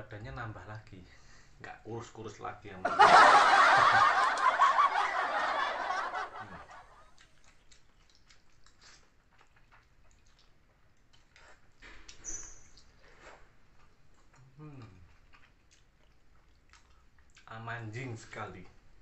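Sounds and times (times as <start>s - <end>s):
man laughing: 2.8s - 6.8s.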